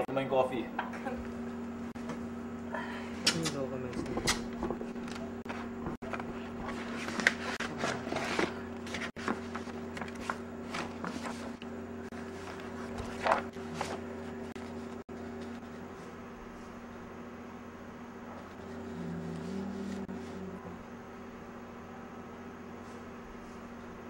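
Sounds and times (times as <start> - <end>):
steady low hum: 0.0 - 24.0
rustling papers: 4.1 - 16.8.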